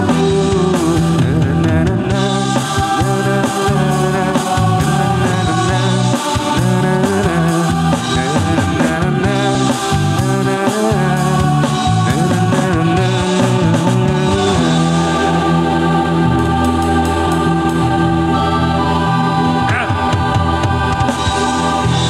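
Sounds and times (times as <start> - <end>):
man singing through speaker: 0.0 - 16.4, 19.4 - 20.3
instrumental accompaniment: 0.0 - 22.0.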